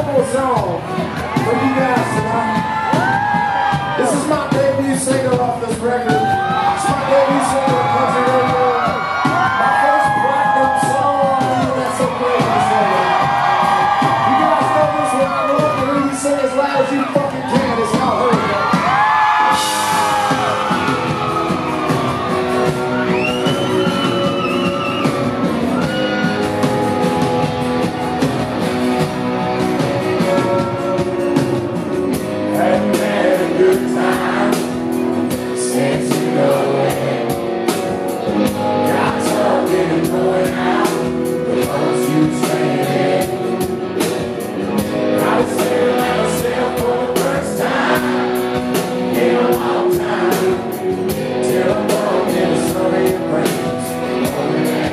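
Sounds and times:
bass guitar: 0.0s - 54.9s
drums playing steady beat: 0.0s - 54.9s
man singing: 3.9s - 13.2s, 30.0s - 37.4s, 38.4s - 54.9s.

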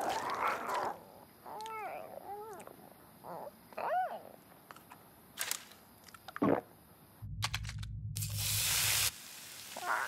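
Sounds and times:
low rumble: 7.2s - 9.1s
loud hiss: 8.2s - 10.0s.

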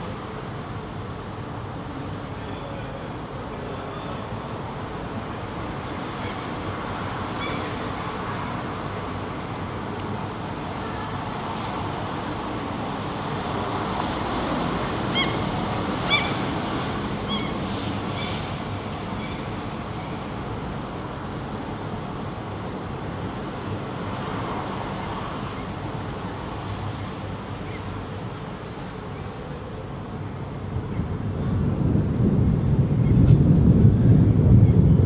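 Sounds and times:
gull calling: 15.1s - 15.5s, 16.1s - 16.4s.

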